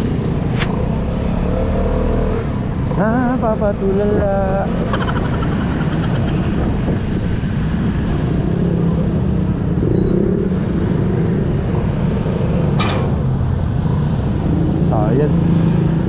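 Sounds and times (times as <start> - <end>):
street traffic: 0.0 - 16.0
high-pitched engine blip: 4.8 - 6.6.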